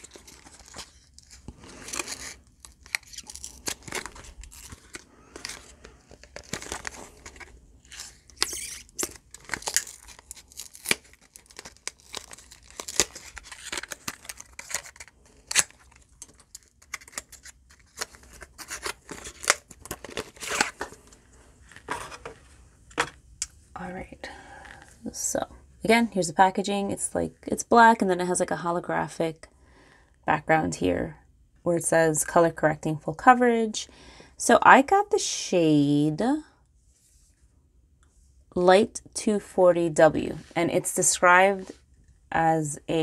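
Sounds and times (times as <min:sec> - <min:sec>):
cardboard packaging rustling: 0:00.0 - 0:23.2.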